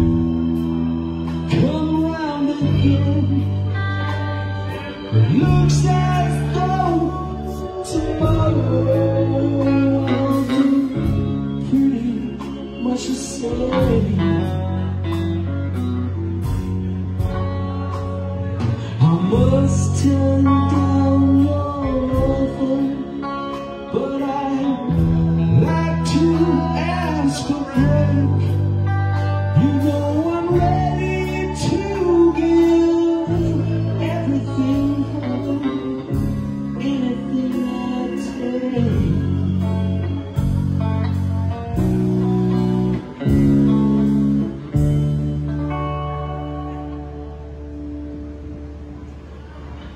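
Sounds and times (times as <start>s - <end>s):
bass guitar: 0.0s - 49.9s
electric guitar: 0.0s - 49.9s
keyboard: 0.0s - 49.9s.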